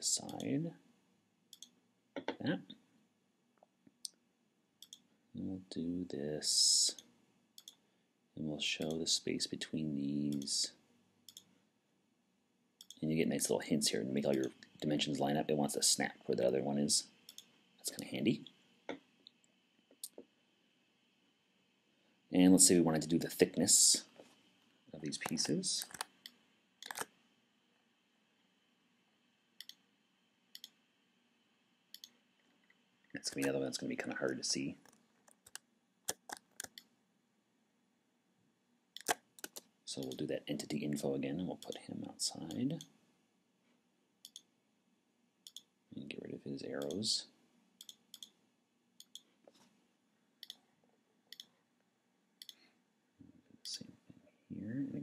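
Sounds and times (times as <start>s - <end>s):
computer mouse clicking: 25.2s - 27.1s, 34.8s - 36.9s, 39.0s - 40.2s.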